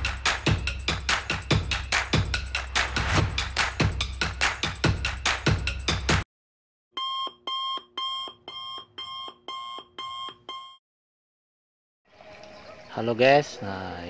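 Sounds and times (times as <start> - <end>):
drum-beat music: 0.0 - 6.2
alarm clock beeping: 7.0 - 10.8.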